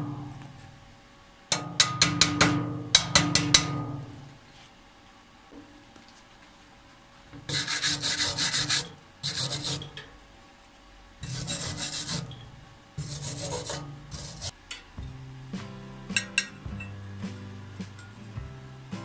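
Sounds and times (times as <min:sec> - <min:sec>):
wire brush scrubbing steel: 0:07.4 - 0:10.1, 0:11.2 - 0:14.6.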